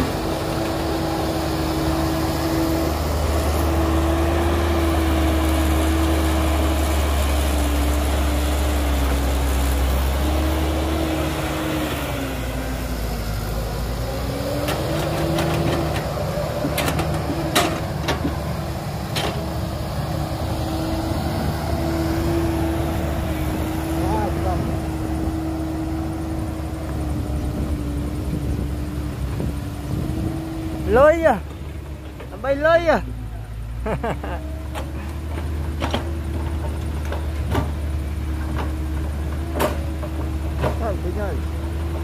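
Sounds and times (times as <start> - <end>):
heavy diesel engine running: 0.0 - 42.0
sharp knocks and clanks: 14.6 - 18.5.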